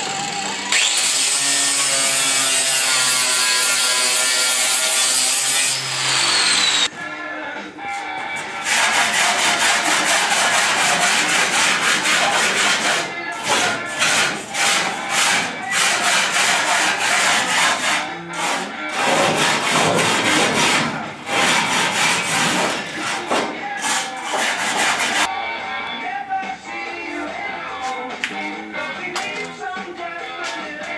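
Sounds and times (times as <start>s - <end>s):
tool scraping steel floor: 7.9s - 25.3s.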